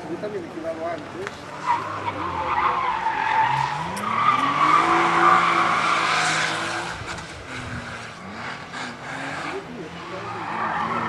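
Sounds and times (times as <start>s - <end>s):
car engine revving hard: 3.5s - 11.0s.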